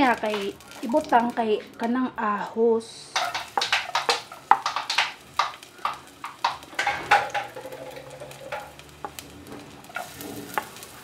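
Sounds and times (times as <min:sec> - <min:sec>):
garlic frying in oil: 0:00.0 - 0:11.0
spatula scraping and tapping: 0:03.1 - 0:10.9.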